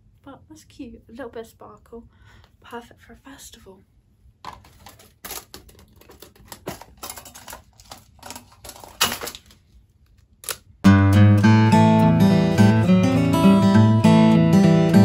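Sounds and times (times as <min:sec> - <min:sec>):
strummed acoustic guitar music: 0:10.8 - 0:15.0.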